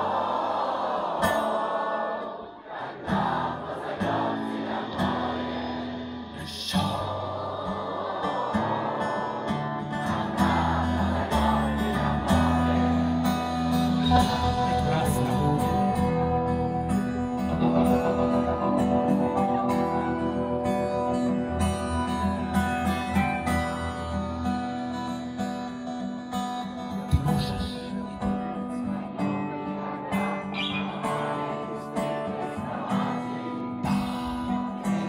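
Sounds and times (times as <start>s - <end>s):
live folk-rock band playing: 8.4s - 35.0s.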